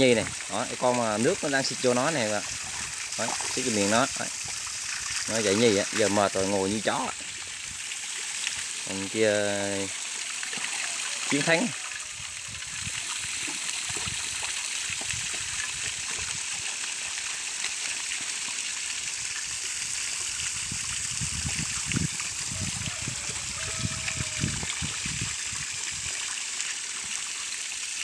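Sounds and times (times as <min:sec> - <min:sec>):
hose spraying water: 0:00.0 - 0:28.0.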